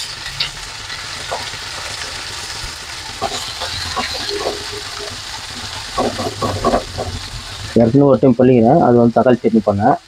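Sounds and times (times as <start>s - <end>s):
onions sizzling in hot oil: 0.0s - 10.0s
wooden spatula scraping a pan: 0.1s - 7.8s.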